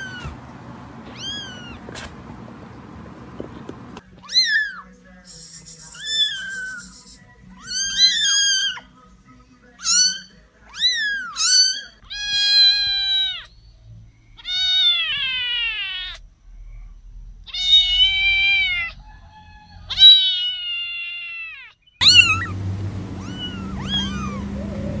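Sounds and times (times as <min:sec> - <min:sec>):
kittens meowing: 0:00.0 - 0:00.4, 0:01.0 - 0:02.0, 0:04.0 - 0:04.9, 0:05.9 - 0:09.0, 0:09.8 - 0:13.6, 0:14.4 - 0:16.2, 0:17.5 - 0:25.0
low steady hum: 0:22.0 - 0:25.0.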